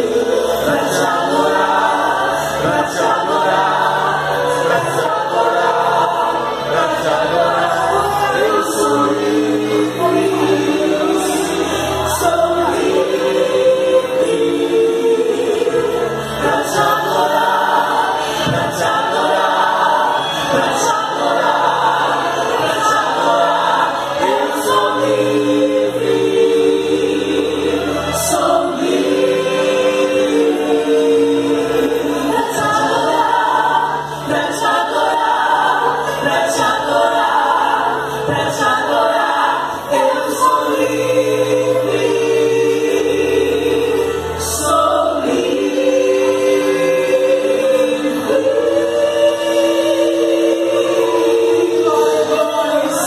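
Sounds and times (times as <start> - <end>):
women singing in harmony: 0.0 - 53.0.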